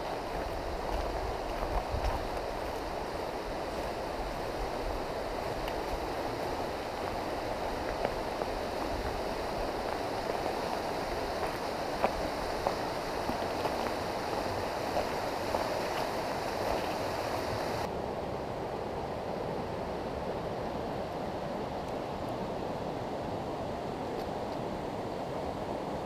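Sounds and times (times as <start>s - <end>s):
river water rushing: 0.0s - 26.0s.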